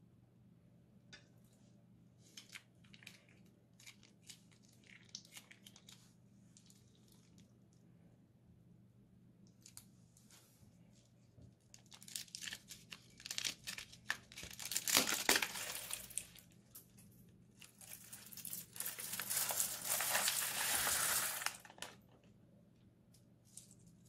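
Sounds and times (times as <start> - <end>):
dense crackling of squeezed plastic: 11.7 - 16.5, 17.7 - 22.2
plastic bag crinkling: 11.8 - 16.5, 17.6 - 22.1.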